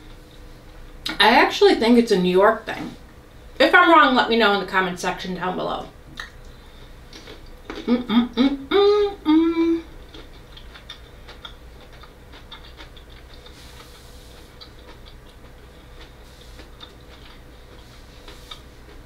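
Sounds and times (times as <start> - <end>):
woman chewing crunchy food: 7.1 - 8.6, 9.2 - 19.0
woman humming mmm: 7.7 - 10.0.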